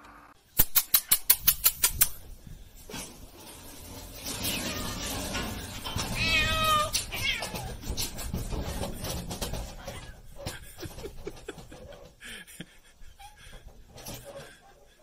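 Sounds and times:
cat meowing: 0:06.2 - 0:07.7.

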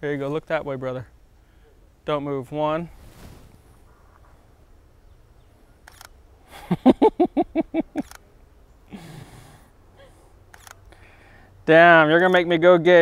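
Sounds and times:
camera shutter click: 0:05.8 - 0:06.2, 0:08.0 - 0:08.2, 0:10.5 - 0:10.8.

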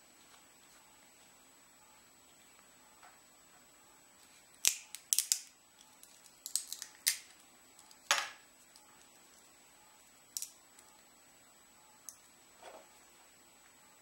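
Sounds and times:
plastic snapping and crackling: 0:04.6 - 0:08.8.

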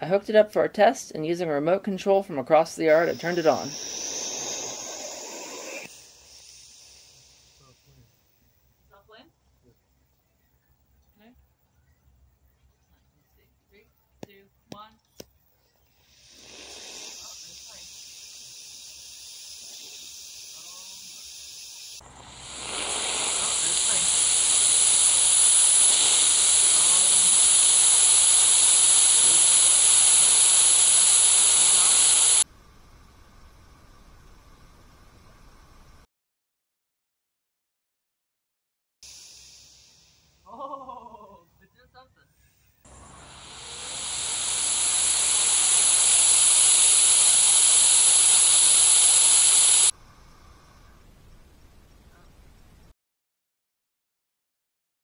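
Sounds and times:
small rocket engine hissing: 0:02.6 - 0:08.4, 0:15.8 - 0:32.5, 0:39.0 - 0:40.7, 0:42.8 - 0:51.1.

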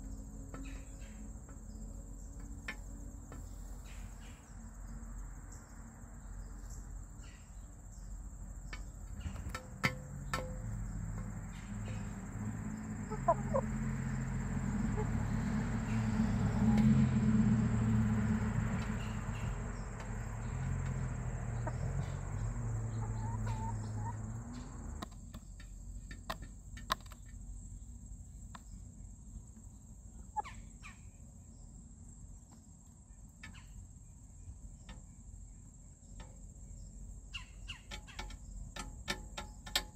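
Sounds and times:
hens clucking: 0:13.0 - 0:13.7, 0:14.7 - 0:15.3, 0:20.8 - 0:25.1.

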